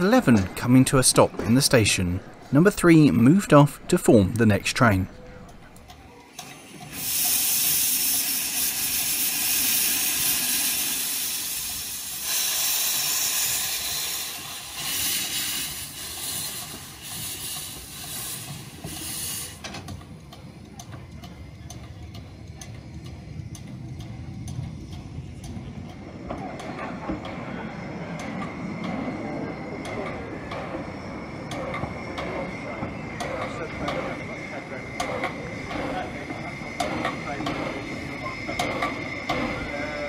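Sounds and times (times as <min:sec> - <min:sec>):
steam locomotive hissing: 0:00.0 - 0:40.0
locomotive light ticks: 0:19.6 - 0:26.0.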